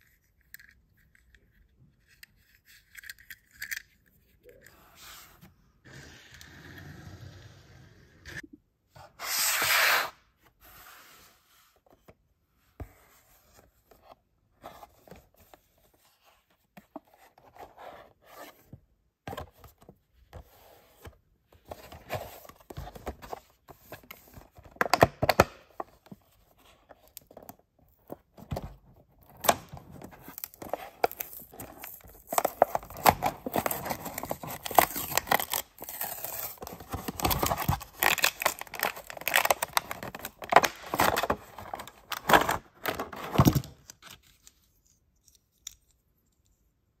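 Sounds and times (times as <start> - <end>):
plastic and card crinkling: 29.3 - 46.0.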